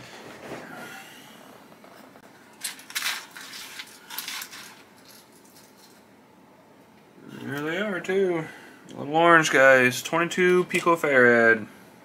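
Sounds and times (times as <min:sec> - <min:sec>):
hands rustling parts in a box: 0:02.5 - 0:06.0.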